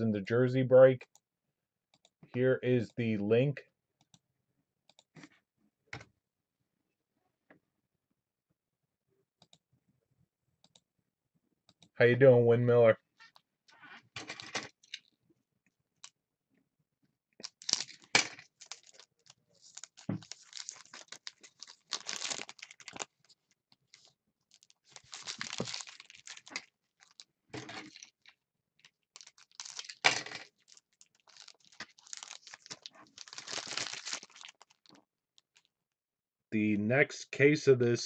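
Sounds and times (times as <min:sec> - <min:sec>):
foil wrapper crinkling: 0:17.4 - 0:27.2, 0:28.8 - 0:35.7.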